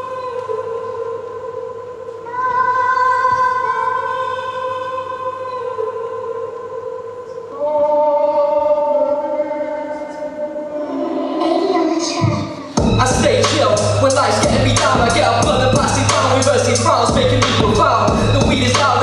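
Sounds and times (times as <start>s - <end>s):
slow choir-like chords: 0.0s - 19.0s.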